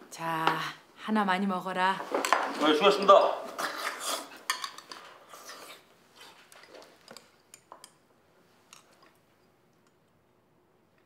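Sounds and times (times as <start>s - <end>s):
utensils clinking against dishes: 3.8s - 5.0s.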